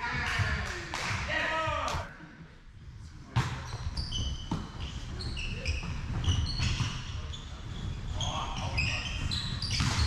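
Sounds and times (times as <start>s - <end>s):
shoes squeaking on wooden floor: 3.6s - 10.0s.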